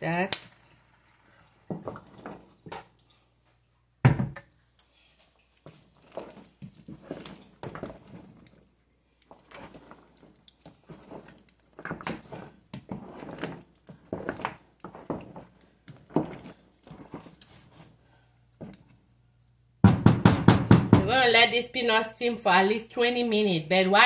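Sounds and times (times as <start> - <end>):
wooden spoon scraping a pot: 1.2 - 3.0, 5.1 - 8.5, 9.3 - 18.0.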